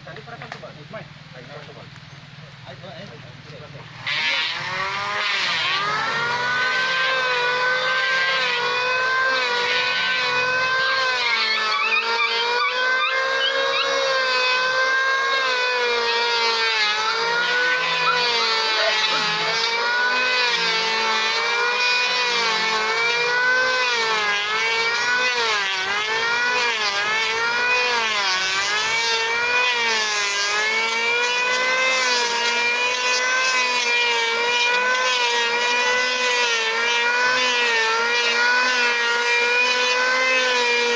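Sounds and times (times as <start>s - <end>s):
power tool cutting wood: 2.8s - 40.9s.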